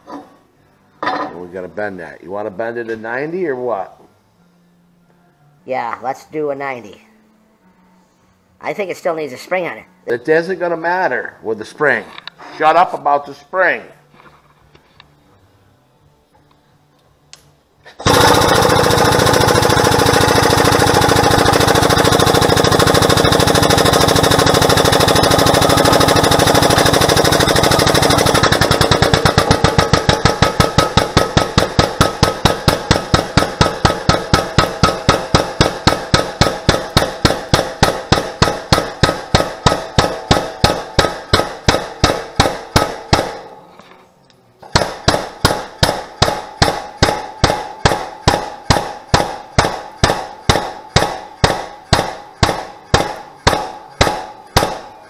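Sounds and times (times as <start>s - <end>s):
hydraulic pump pumping: 17.9s - 43.2s.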